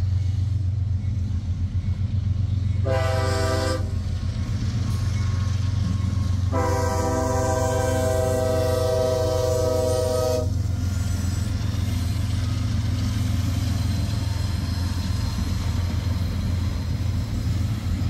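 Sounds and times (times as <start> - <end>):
freight train rumbling past: 0.0 - 18.0
train horn chord: 2.8 - 4.0, 6.5 - 10.6.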